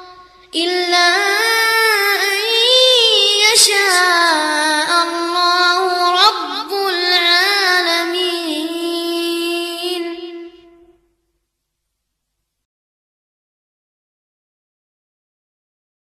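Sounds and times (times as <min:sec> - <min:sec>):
melodic recitation by high voice: 0:00.0 - 0:11.1.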